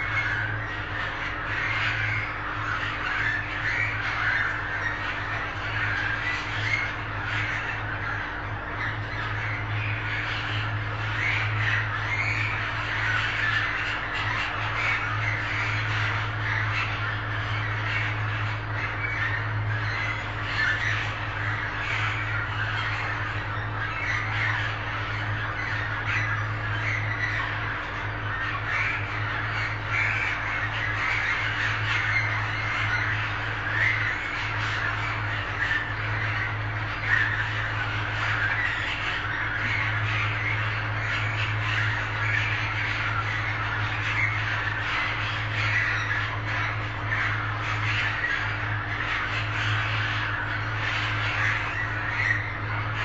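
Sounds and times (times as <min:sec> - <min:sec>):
budgerigars chattering and squawking: 0:00.0 - 0:53.0
steady low hum: 0:00.0 - 0:53.0.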